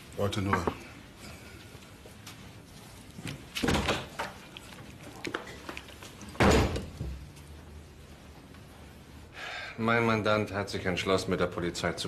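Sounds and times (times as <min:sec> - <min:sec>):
knocks and handling noises: 0:00.4 - 0:00.9
door slamming shut: 0:06.4 - 0:06.9.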